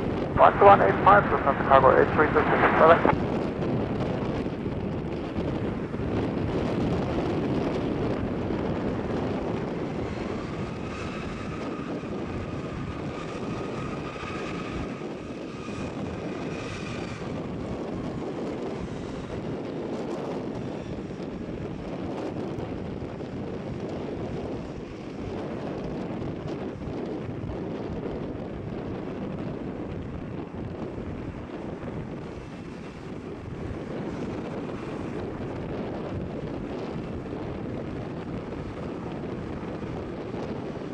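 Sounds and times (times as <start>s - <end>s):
jet engines rumbling: 0.0s - 19.7s
jet engine whine: 0.0s - 22.6s.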